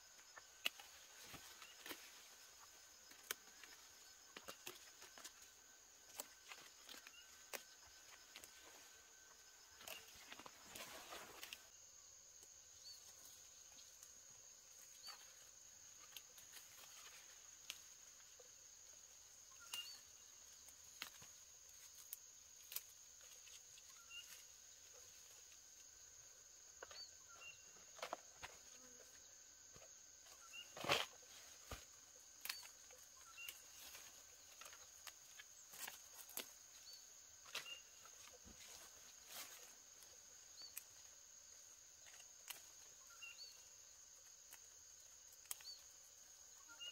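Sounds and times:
high insect drone: 0:00.0 - 0:46.9
insect chirps: 0:00.0 - 0:46.9
leafy plants snapping and rustling: 0:00.4 - 0:09.0, 0:09.7 - 0:11.7, 0:13.0 - 0:18.4, 0:19.5 - 0:25.6, 0:30.2 - 0:41.3, 0:41.9 - 0:43.0, 0:44.2 - 0:46.1.

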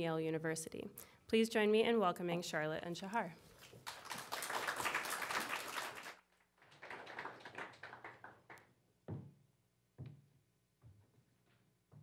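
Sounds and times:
audience applauding: 0:03.8 - 0:08.6.

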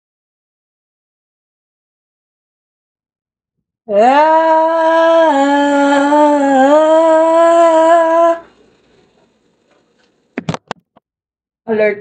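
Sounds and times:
person singing long ahh note: 0:03.9 - 0:08.6.

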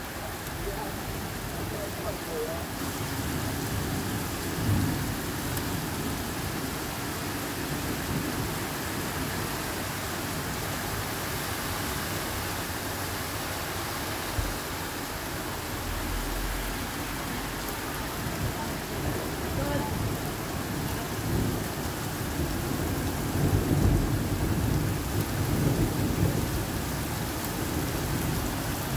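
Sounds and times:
heavy rain pouring: 0:00.0 - 0:28.9
low rumble: 0:14.3 - 0:18.9.

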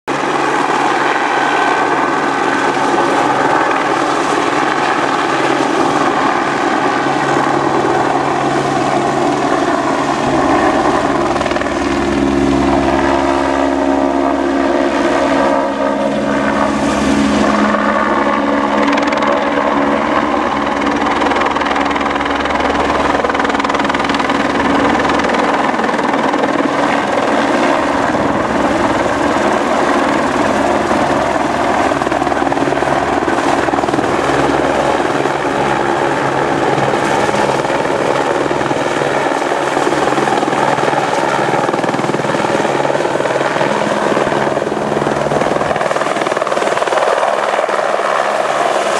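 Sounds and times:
helicopter turbine and rotor noise: 0:00.1 - 0:48.9
deep rotor rumble: 0:07.6 - 0:37.7.

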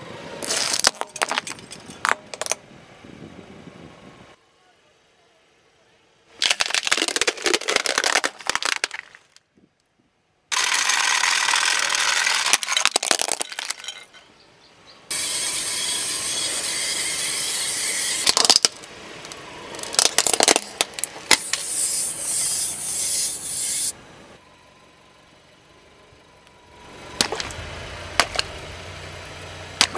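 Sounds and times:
plastic toys crunching under tyre: 0:00.4 - 0:02.6, 0:06.4 - 0:09.5, 0:10.5 - 0:14.1, 0:18.2 - 0:21.9, 0:27.2 - 0:27.6, 0:28.2 - 0:28.5.

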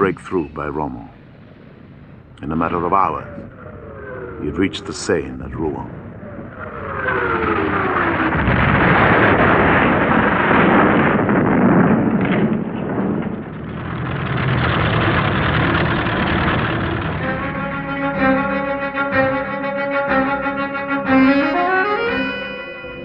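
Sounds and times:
battle explosions and fire: 0:00.0 - 0:21.2
falling whistle: 0:06.2 - 0:08.4, 0:17.2 - 0:23.0.

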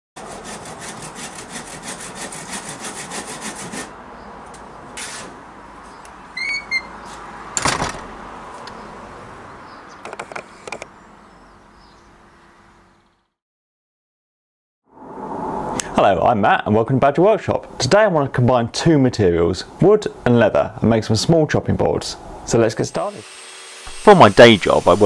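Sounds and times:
hand saw cutting wood: 0:00.2 - 0:04.0, 0:23.0 - 0:25.0.

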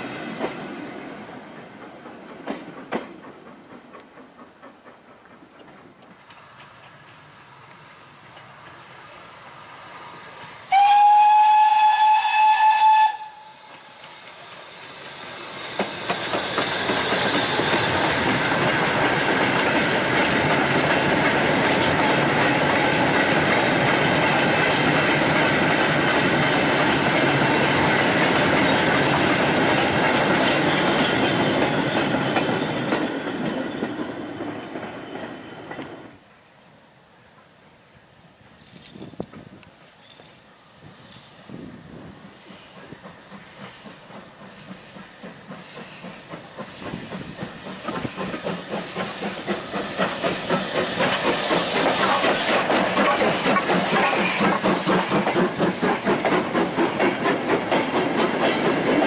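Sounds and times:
train passing close by: 0:00.0 - 0:59.0
steam locomotive whistle: 0:10.7 - 0:15.8.

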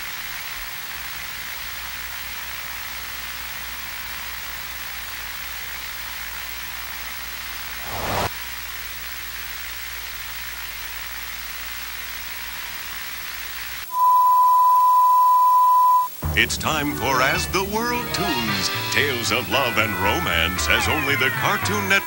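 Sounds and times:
tv static hiss: 0:05.8 - 0:08.3, 0:16.1 - 0:22.0.

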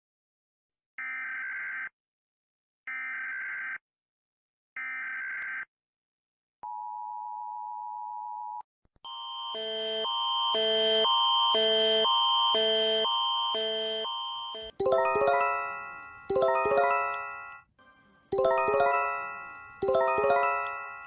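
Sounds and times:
alarm with alternating pitches: 0:09.1 - 0:17.7, 0:18.4 - 0:21.0.

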